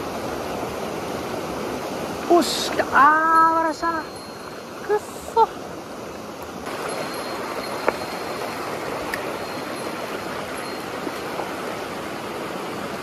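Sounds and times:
stream running over rocks: 0.0s - 13.0s.

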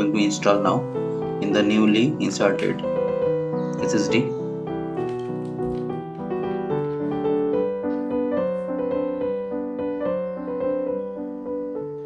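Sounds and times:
calm piano music: 0.0s - 12.0s.

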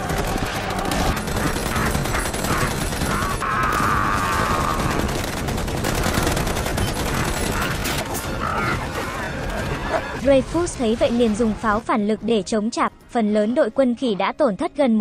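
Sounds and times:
rapid automatic gunfire: 0.0s - 10.2s.

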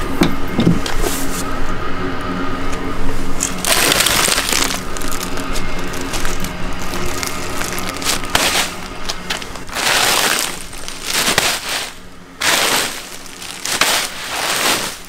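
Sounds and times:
bag of ice hitting asphalt: 3.6s - 15.0s.

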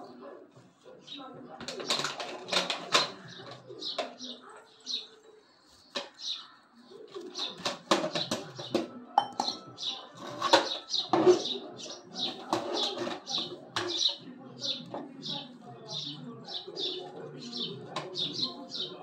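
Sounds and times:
small birds chirping: 0.0s - 19.0s
sharp clicks and clatters: 1.6s - 4.2s.

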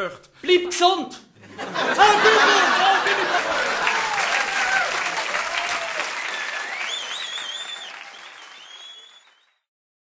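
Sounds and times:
audience applauding: 2.0s - 9.7s
high wavering whistle: 6.2s - 9.4s.

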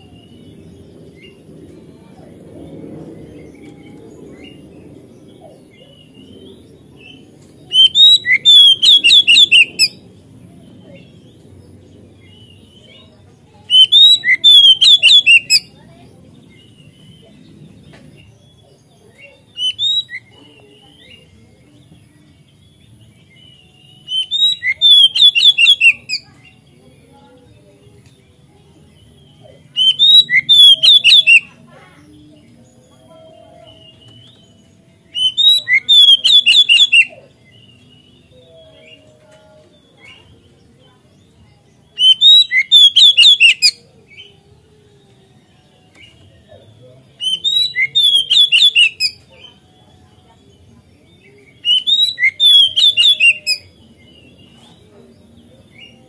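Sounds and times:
bird singing whistled phrases: 6.2s - 10.0s, 13.7s - 15.7s, 19.4s - 21.3s, 23.3s - 26.3s, 29.0s - 31.6s, 32.4s - 39.1s, 41.2s - 44.4s, 47.1s - 49.6s, 51.1s - 54.7s.

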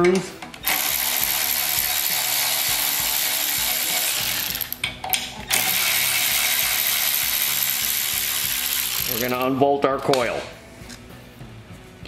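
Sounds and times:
cordless ratchet motor whirring: 0.6s - 4.8s, 5.5s - 9.4s.

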